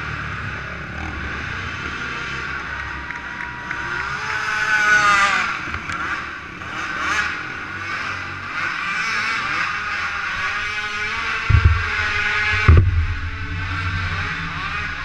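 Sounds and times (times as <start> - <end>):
quad bike engines revving: 0.0 - 15.0.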